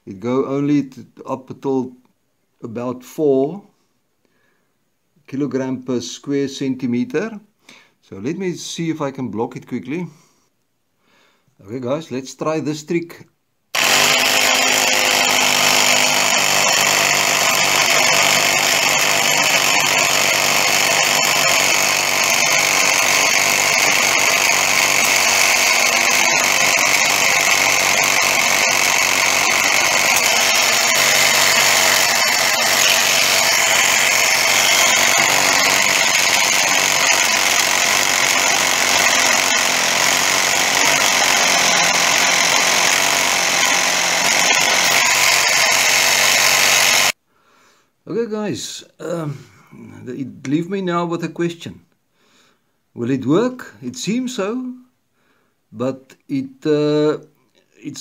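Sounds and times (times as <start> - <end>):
electric air compressor running: 13.8 - 47.2.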